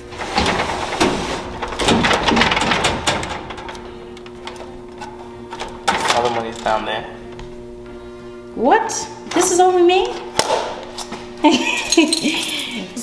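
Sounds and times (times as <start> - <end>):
vending machine door rattling open: 0.0 - 6.9.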